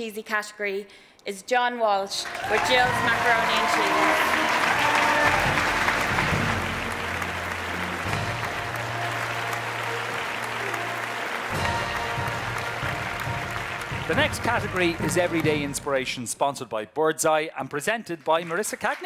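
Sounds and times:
background music: 2.0 - 17.5
audience applauding: 2.2 - 16.2, 18.1 - 19.0.

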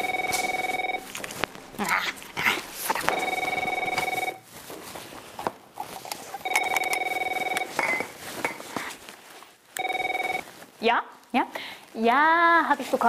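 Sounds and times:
mobile phone ringing: 0.0 - 1.8, 2.9 - 4.5, 6.4 - 8.2, 9.8 - 10.6
rustling and clatter in handbag: 0.0 - 10.8.

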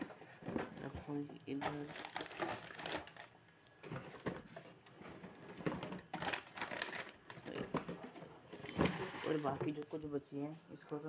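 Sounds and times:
plastic bottles and caps rattling: 0.0 - 9.9
plastic bag crinkling: 1.5 - 3.6, 5.4 - 7.8, 8.5 - 9.8.

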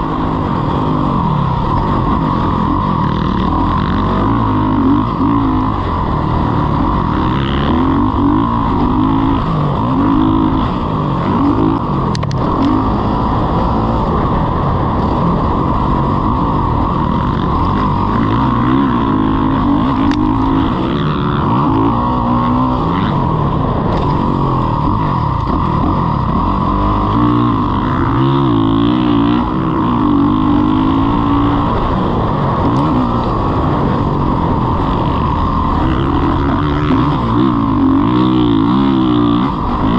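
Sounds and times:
motocross bike engine revving: 0.0 - 39.9.

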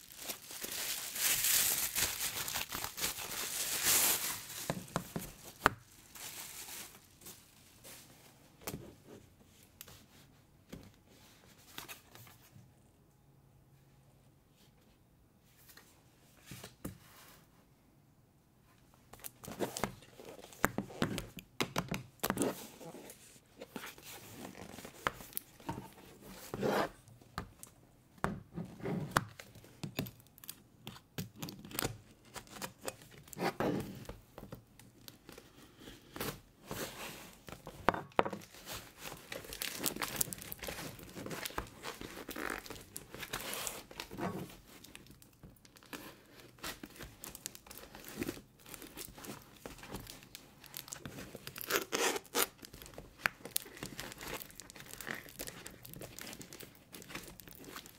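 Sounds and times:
tape tearing and crinkling: 0.0 - 7.4, 38.4 - 57.9.

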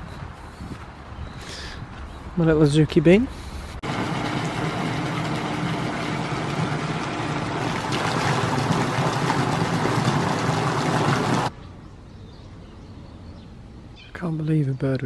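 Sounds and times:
waterfall splashing into pool: 3.8 - 11.5.

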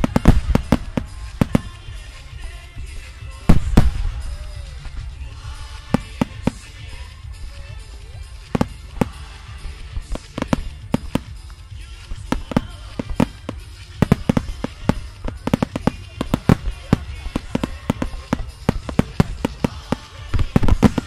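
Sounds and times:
low rumble: 0.0 - 19.8
fireworks bursting with sharp cracks: 0.0 - 21.0
music: 0.0 - 21.0.

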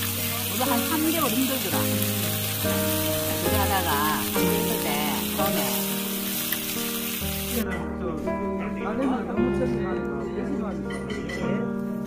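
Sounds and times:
pork sizzling on grill: 0.0 - 7.8
background music: 0.0 - 12.0.

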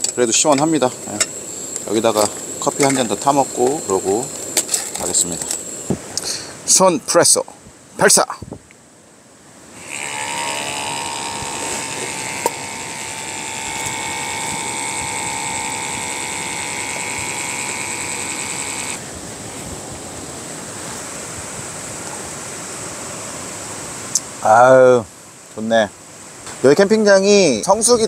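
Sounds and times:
faint hiss: 0.0 - 28.0
espresso maker pump whirring: 9.8 - 19.0.

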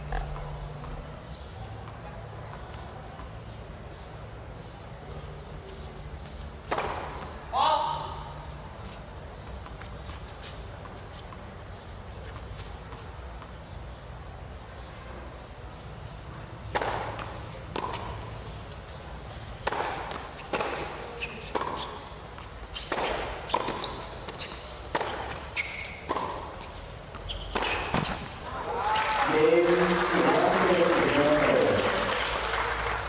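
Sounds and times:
tennis ball bouncing: 6.6 - 7.4, 16.6 - 28.4
tennis rackets hitting ball: 6.6 - 7.5, 16.6 - 18.8, 19.4 - 28.4.

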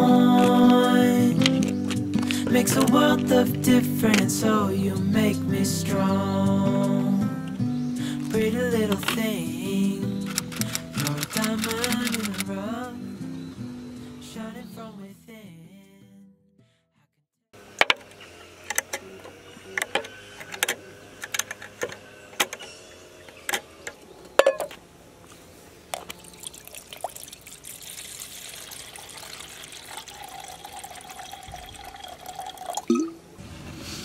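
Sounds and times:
cookware clinking and knocking: 24.4 - 24.7
water pouring into pot: 26.2 - 32.9.

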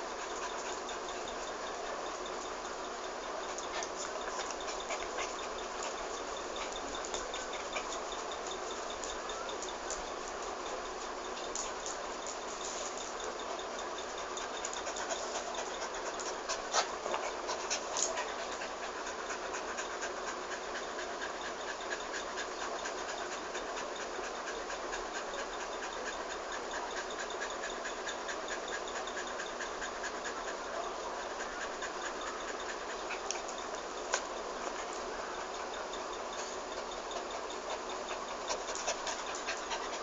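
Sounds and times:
constant hiss: 0.0 - 40.0
small dog panting: 0.0 - 40.0.

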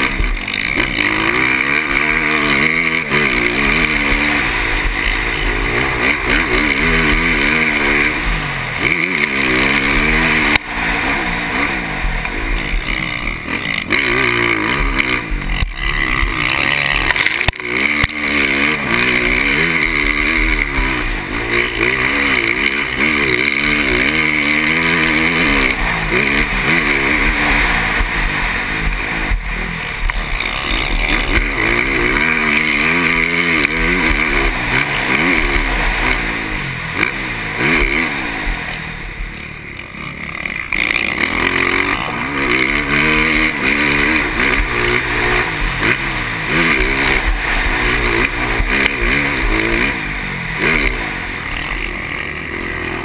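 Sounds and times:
motocross bike engine revving: 0.0 - 53.0.

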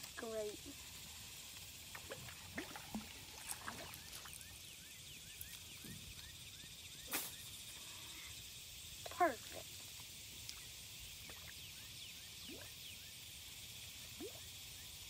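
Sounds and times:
faint reel chirps: 2.9 - 15.0.

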